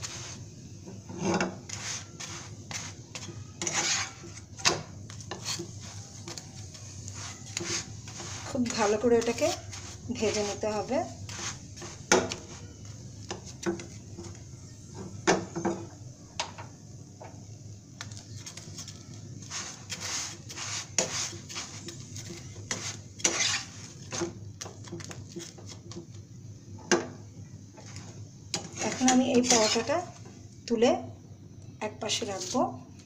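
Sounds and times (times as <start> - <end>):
plastic spatula scraping a frying pan: 0.0 - 14.4, 18.7 - 24.3, 27.8 - 30.2.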